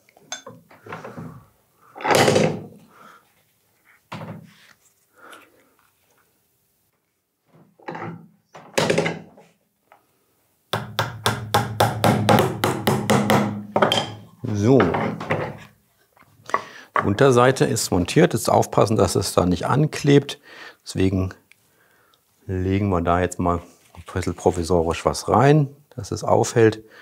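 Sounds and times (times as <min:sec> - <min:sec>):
hammer tapping nails: 0:10.7 - 0:14.2.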